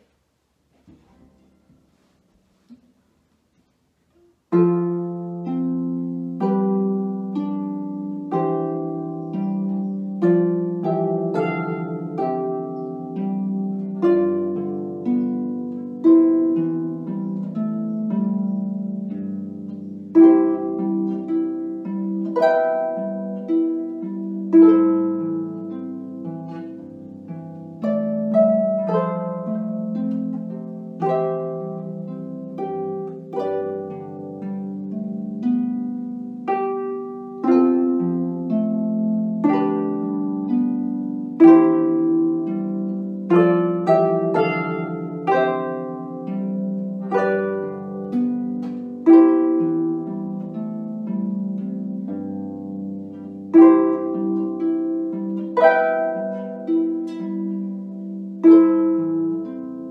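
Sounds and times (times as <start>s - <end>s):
harp playing slow melody: 1.0s - 59.9s.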